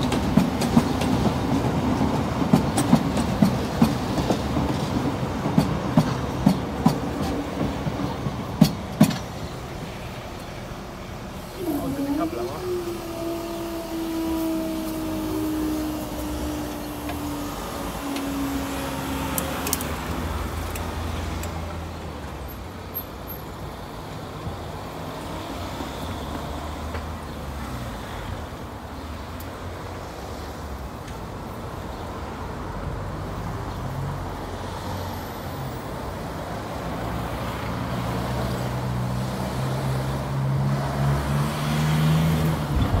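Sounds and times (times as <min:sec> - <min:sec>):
approaching train drone: 0:00.0 - 0:22.4
train rumble: 0:00.0 - 0:34.9, 0:35.6 - 0:43.0
electric train whine: 0:09.8 - 0:22.4.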